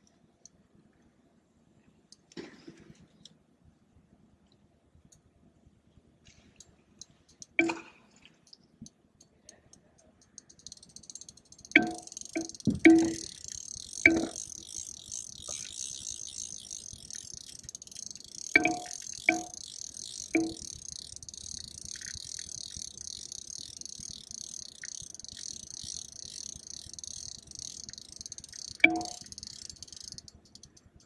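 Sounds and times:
fishing reel ticking fast: 10.2 - 31.0
sharp ringing knocks: 18.6 - 19.6.

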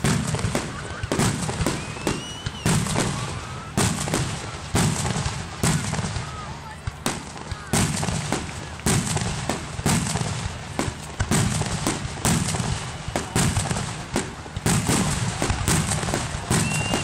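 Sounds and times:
continuous crackling: 0.0 - 17.0
firework shells bursting: 6.9 - 17.0.

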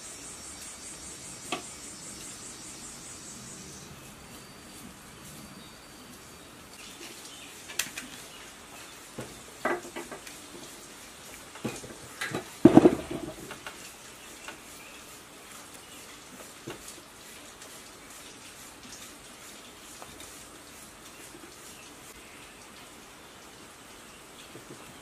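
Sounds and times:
metal housing knocking on wood: 12.4 - 13.6.

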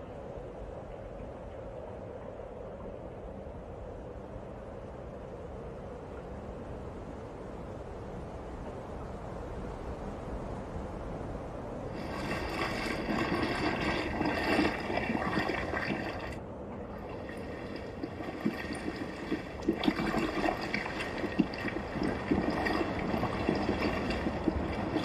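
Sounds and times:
water splashing against rocky shore: 11.9 - 25.0.

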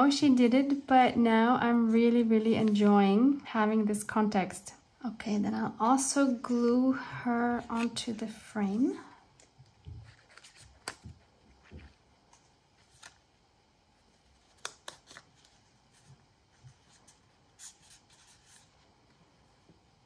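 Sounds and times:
paper rustling: 9.9 - 13.2, 14.2 - 18.9.

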